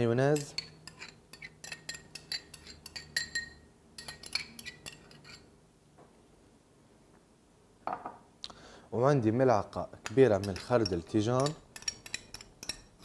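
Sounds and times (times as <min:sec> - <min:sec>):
spoon clinking against glass bowl: 0:00.3 - 0:05.4, 0:10.1 - 0:13.0.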